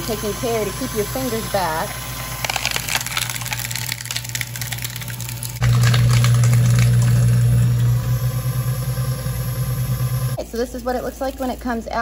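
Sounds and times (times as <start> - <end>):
shredder motor hum: 0.0 - 10.4
cutters crunching plastic bottle: 2.4 - 7.0.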